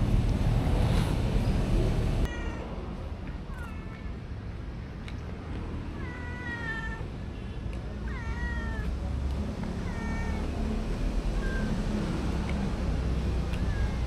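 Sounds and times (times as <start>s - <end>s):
kitten meowing: 2.2s - 2.7s, 8.1s - 8.9s.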